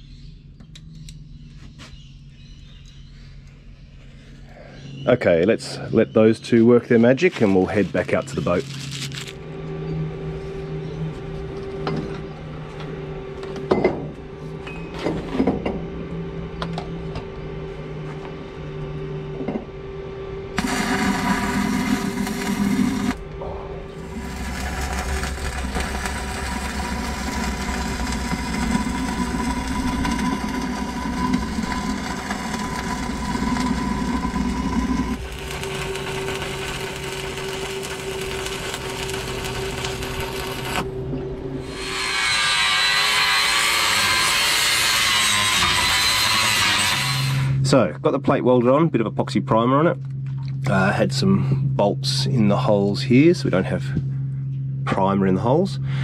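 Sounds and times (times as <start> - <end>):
steady hum: 3.2 - 43.4, 46.3 - 56.0
welding arc crackling and hissing: 20.6 - 40.9.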